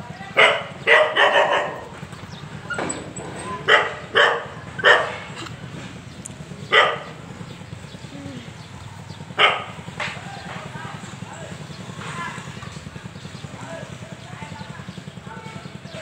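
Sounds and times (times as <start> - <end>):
dog barking: 0.4 - 1.9, 3.6 - 5.3, 6.6 - 7.2, 9.4 - 9.8.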